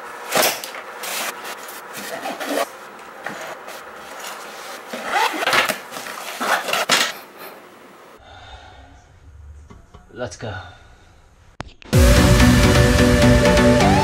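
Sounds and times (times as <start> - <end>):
backpack fabric and zipper rasping: 1.9 - 2.7, 3.3 - 7.1.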